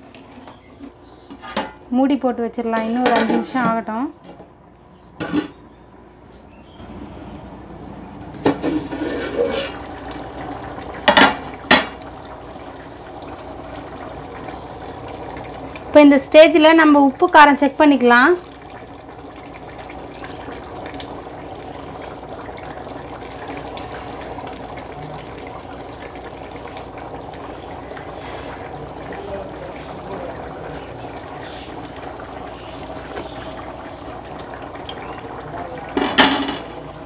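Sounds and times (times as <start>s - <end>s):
rice bubbling at the boil: 6.8s - 37.0s
ladle stirring: 8.4s - 10.0s.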